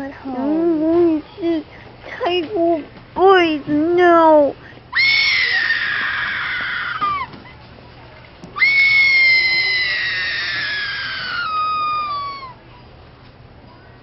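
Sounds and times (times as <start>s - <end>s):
girl screaming: 5.0s - 7.3s, 8.6s - 12.6s.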